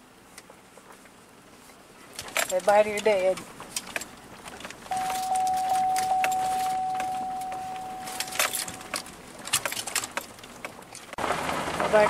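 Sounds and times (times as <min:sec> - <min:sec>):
keys jingling: 0:03.8 - 0:11.1
steady tone: 0:04.9 - 0:09.1.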